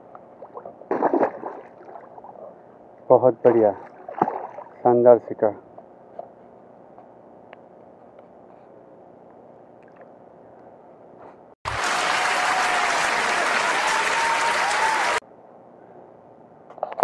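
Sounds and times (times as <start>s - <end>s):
faint outdoor background: 0.0s - 11.6s, 15.2s - 17.0s
crowd applause: 11.7s - 15.2s.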